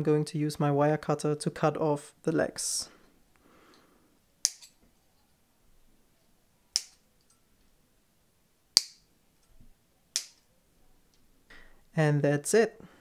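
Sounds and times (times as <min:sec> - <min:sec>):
wire cutters snipping: 0:04.4 - 0:04.8, 0:06.7 - 0:07.0.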